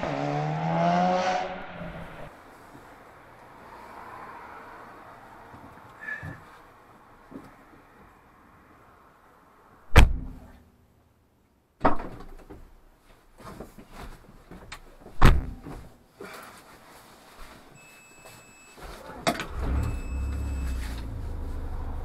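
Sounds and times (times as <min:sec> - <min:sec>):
rustling and bumps: 0:12.0 - 0:22.0.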